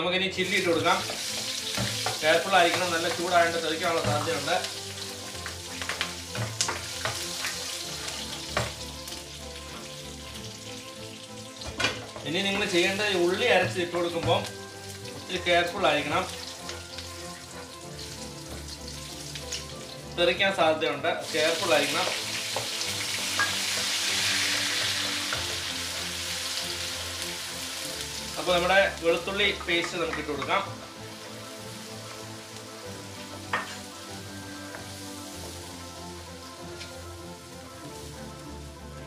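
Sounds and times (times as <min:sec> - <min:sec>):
chillies sizzling in hot oil: 0:00.4 - 0:39.0
wooden spoon knocking pan: 0:01.0 - 0:04.5, 0:05.8 - 0:07.2.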